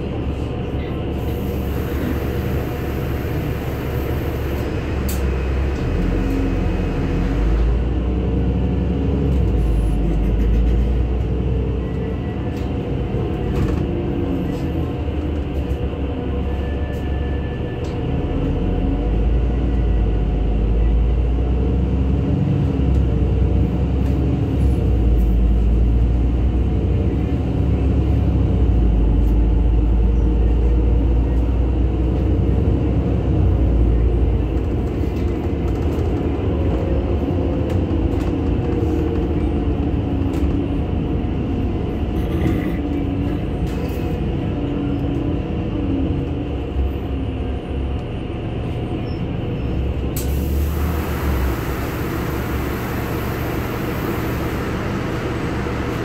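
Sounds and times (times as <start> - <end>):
bus engine and road rumble: 0.0 - 56.0.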